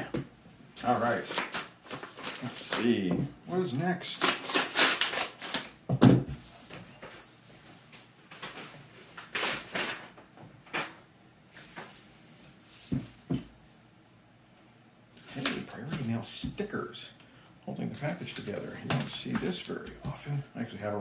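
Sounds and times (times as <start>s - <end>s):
paper crinkling: 0.8s - 2.9s, 4.0s - 5.8s, 17.9s - 20.2s
package rustling: 4.0s - 5.8s.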